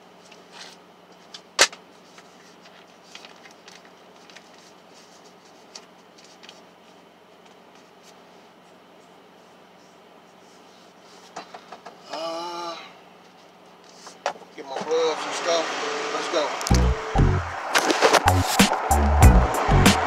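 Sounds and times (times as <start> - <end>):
paper rustling: 0.2 - 11.4
steady low hum: 15.0 - 20.0.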